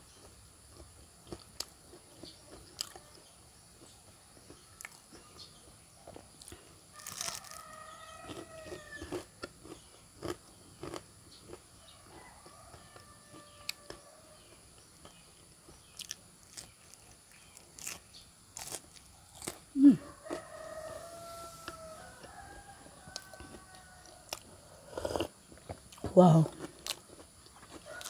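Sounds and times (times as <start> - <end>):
crunching and chewing fried food: 0.0 - 28.0
rooster crowing faintly: 6.9 - 9.3, 19.8 - 25.2, 27.7 - 28.0.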